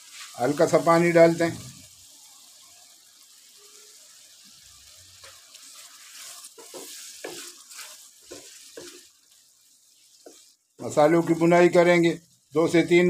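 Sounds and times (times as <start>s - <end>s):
masala sizzling in a frying pan: 0.0s - 13.0s
wooden spatula scraping pan: 5.2s - 9.1s, 10.0s - 11.4s.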